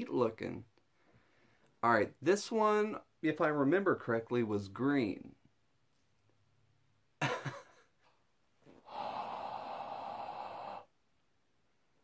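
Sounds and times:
man breathing: 0:00.9 - 0:01.8, 0:08.7 - 0:11.0.

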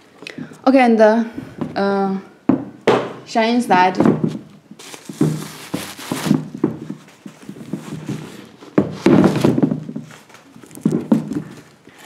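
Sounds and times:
cardboard box rustling: 0:04.8 - 0:11.8.

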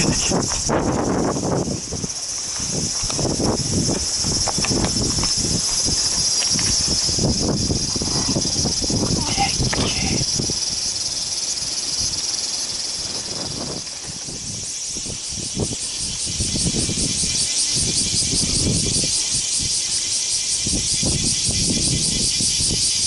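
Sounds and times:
cicadas chirping: 0:00.0 - 0:23.0.

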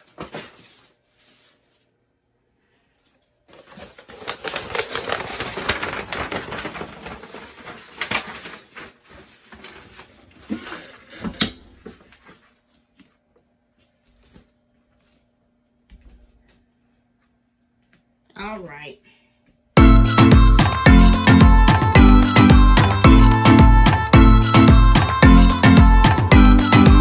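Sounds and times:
paper rustling and crinkling: 0:00.0 - 0:01.9, 0:03.5 - 0:11.0, 0:11.8 - 0:13.2, 0:13.8 - 0:15.3.

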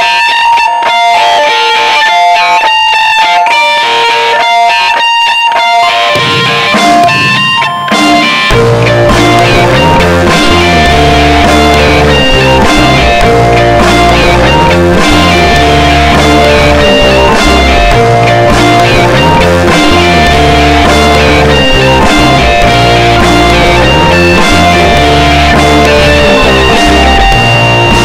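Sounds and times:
drums: 0:00.0 - 0:28.0
electric guitar melody: 0:00.0 - 0:28.0
bass: 0:08.5 - 0:28.0.

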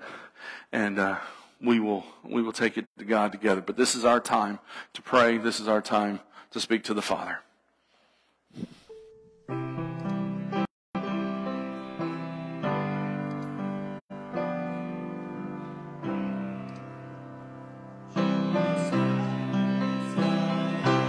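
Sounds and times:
piano slow held chords: 0:08.9 - 0:21.0.

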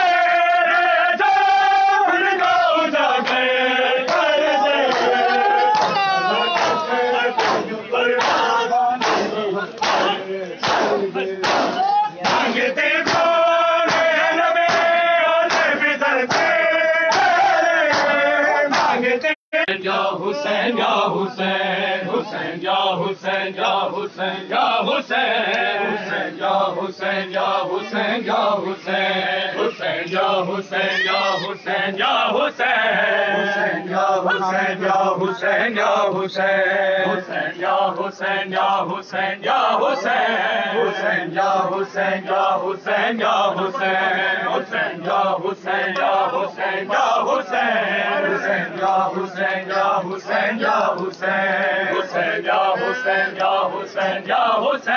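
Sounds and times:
crowd of men chanting: 0:00.0 - 0:54.9
chest-beating slaps: 0:06.6 - 0:19.0.

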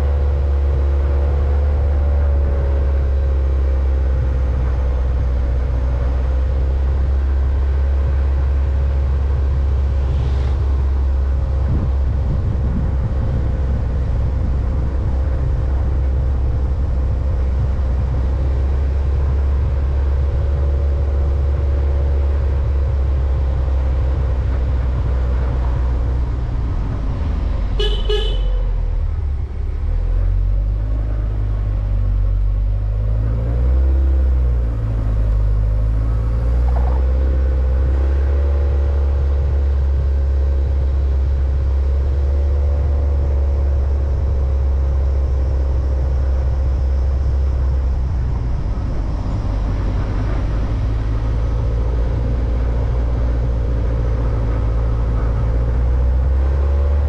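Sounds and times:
vehicle engine rumble: 0:00.0 - 0:57.0
vehicle horn beeps: 0:27.8 - 0:28.7.

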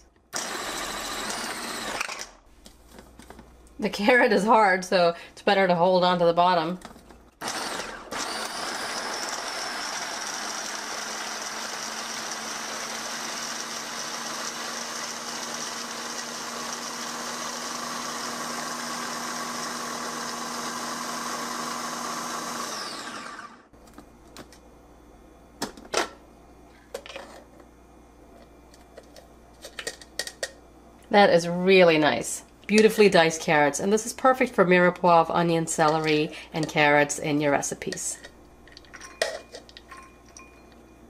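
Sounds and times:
electric chopper motor whine: 0:17.6 - 0:23.7.

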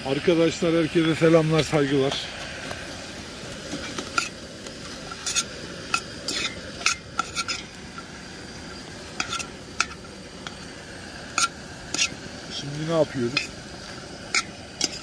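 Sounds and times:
onions sizzling: 0:00.0 - 0:15.0
metal spoon scraping a pot: 0:03.7 - 0:08.1, 0:09.1 - 0:10.6, 0:11.3 - 0:12.2, 0:13.3 - 0:13.6, 0:14.2 - 0:15.0.

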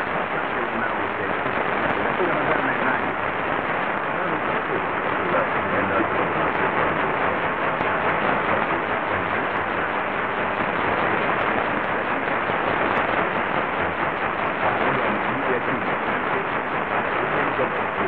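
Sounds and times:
radio static hiss: 0:00.0 - 0:18.0
weak distant radio signal: 0:00.0 - 0:18.0.

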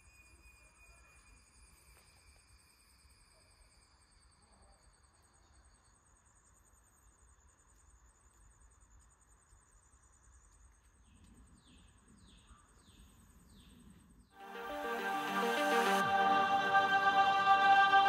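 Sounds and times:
bird chirping: 0:10.5 - 0:16.2.

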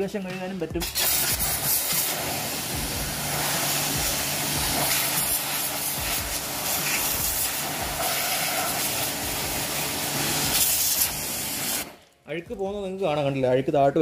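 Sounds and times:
pressure washer low hum: 0:00.7 - 0:12.0
pressure washer spray hiss: 0:00.8 - 0:12.0.

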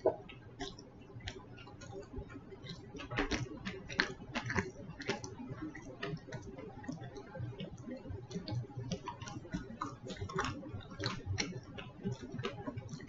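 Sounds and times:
person chewing fried food: 0:00.0 - 0:13.0.

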